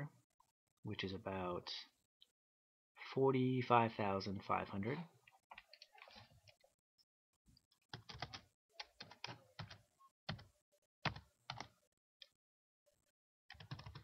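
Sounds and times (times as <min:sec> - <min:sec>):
computer keyboard typing: 0:07.9 - 0:11.7, 0:13.5 - 0:14.0.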